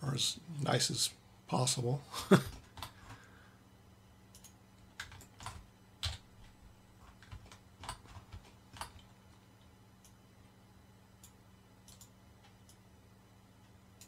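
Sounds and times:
faint steady hum: 0.0s - 14.0s
computer keyboard keystrokes: 4.3s - 9.1s, 11.2s - 12.8s.

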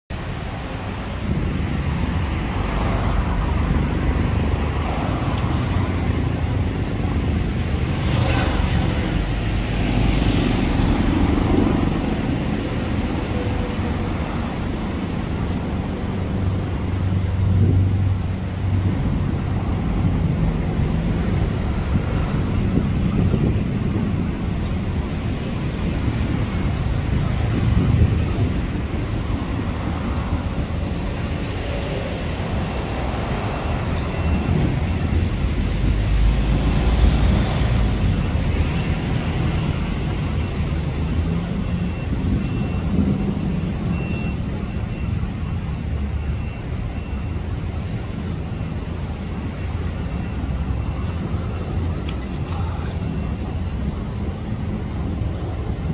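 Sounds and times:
low urban rumble: 0.1s - 55.9s.

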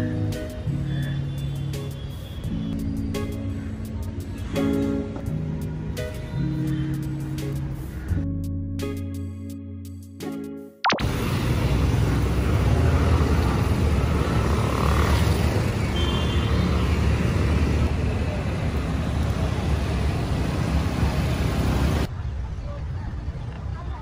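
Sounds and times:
street traffic engine rumble: 0.0s - 8.2s, 11.0s - 24.0s.

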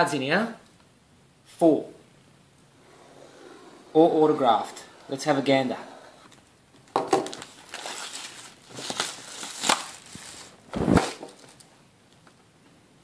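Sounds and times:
plastic shrink wrap tearing: 7.2s - 11.7s
box thump: 10.7s - 11.4s.

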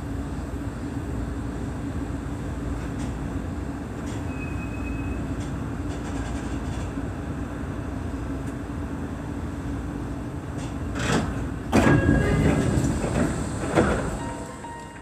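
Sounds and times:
electric train rumbling: 0.0s - 15.0s
brief high tone: 14.2s - 15.0s.

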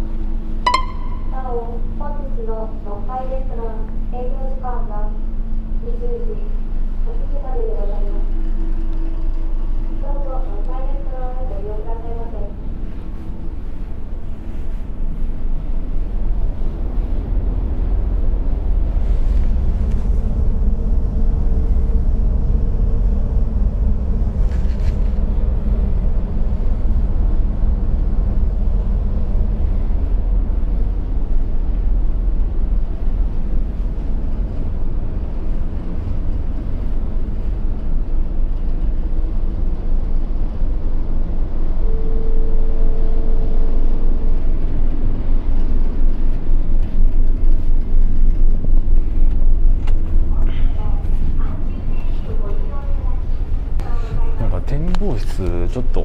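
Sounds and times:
ship engines rumbling: 0.0s - 56.0s
faint tone: 0.6s - 2.2s.

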